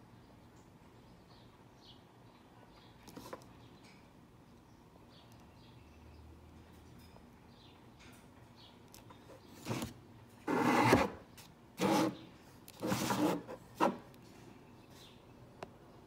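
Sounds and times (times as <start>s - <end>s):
rubbing and scraping handling noise: 9.3s - 15.1s.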